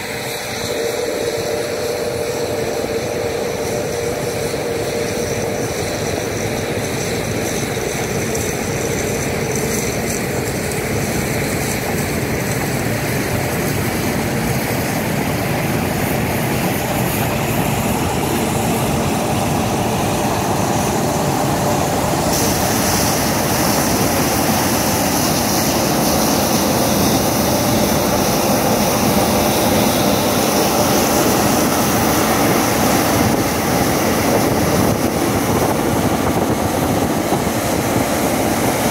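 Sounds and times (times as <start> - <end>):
combine harvester running: 0.0 - 38.9
bright hiss: 22.1 - 38.9.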